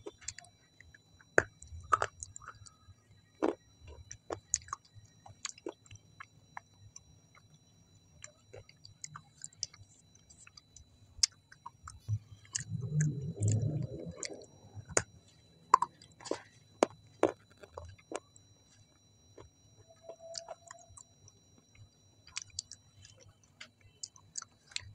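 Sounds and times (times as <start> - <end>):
person chewing food: 0.0 - 7.5, 8.2 - 24.9.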